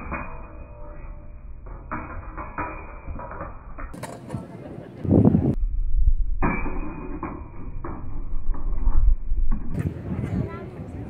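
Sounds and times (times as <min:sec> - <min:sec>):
steel blades clashing and scraping: 0:00.0 - 0:04.4
wind rumbling on microphone: 0:03.6 - 0:11.0.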